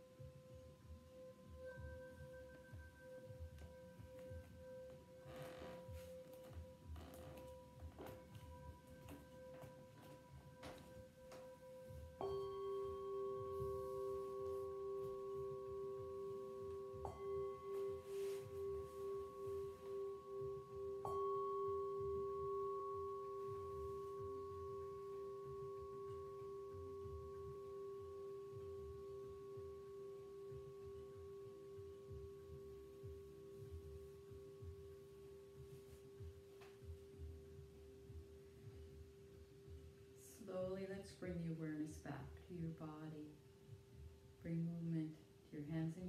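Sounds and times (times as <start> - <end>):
metal singing bowls ringing: 1.1 - 36.2.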